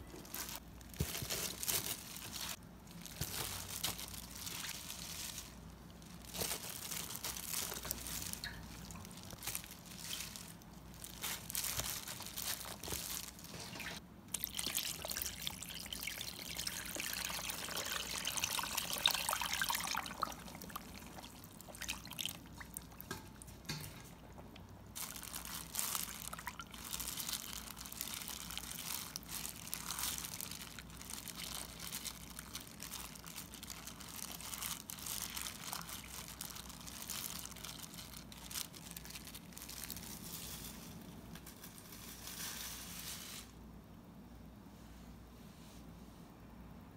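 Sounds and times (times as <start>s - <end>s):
liquid splashing and sloshing: 12.3s - 29.6s
liquid pouring into a tub: 13.6s - 23.7s.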